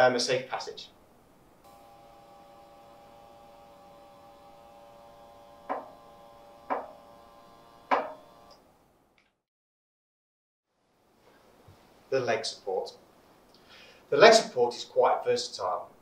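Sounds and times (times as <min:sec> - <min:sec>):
electric motor humming: 0:01.6 - 0:08.6
sharp knocks: 0:05.6 - 0:07.1, 0:07.8 - 0:08.3.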